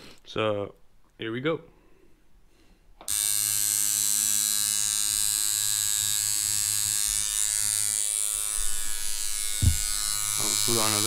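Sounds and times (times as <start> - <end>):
tattoo machine buzzing: 3.0 - 11.0.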